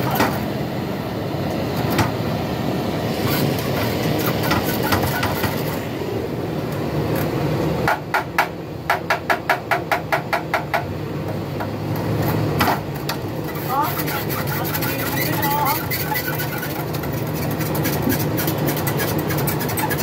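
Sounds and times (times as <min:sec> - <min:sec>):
hammer tapping on metal: 0:07.8 - 0:11.8.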